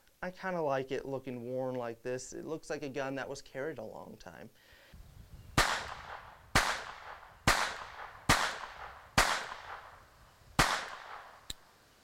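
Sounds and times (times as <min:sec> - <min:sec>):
pistol shots with echo: 0:05.6 - 0:10.0, 0:10.6 - 0:11.5.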